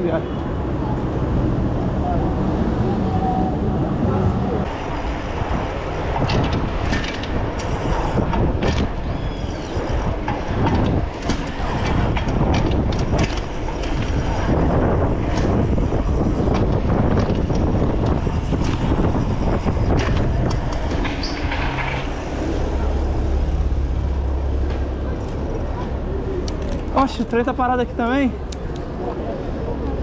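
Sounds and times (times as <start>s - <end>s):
motor traffic: 0.0s - 30.0s
wind rush on microphone: 0.0s - 30.0s
bicycle rolling noise: 0.8s - 30.0s
bike clicks and rattles: 5.4s - 22.4s, 24.5s - 29.2s.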